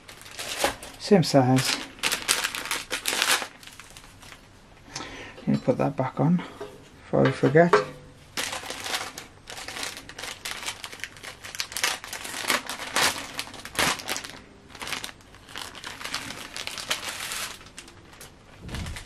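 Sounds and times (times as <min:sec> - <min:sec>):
wrapping crinkling: 0:00.0 - 0:04.5, 0:08.4 - 0:19.0.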